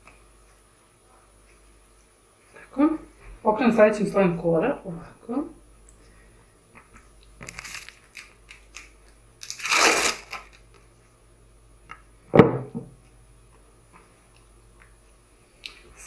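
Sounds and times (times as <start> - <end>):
pasta sheets rustling and crinkling: 7.4 - 10.9.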